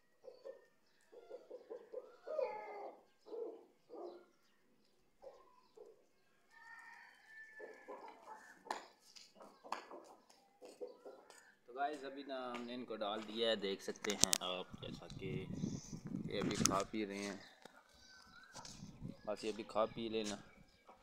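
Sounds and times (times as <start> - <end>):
chickens clucking: 0.2 - 2.2, 7.6 - 11.4, 18.2 - 21.0.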